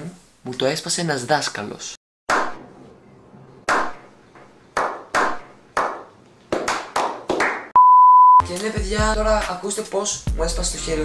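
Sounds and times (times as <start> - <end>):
hand claps: 4.8 - 7.7.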